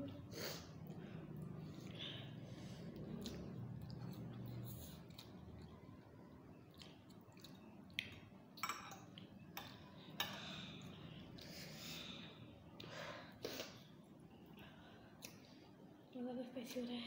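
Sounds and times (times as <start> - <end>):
chewing: 0.8 - 8.4
forks clinking on glass bowls: 8.6 - 9.2.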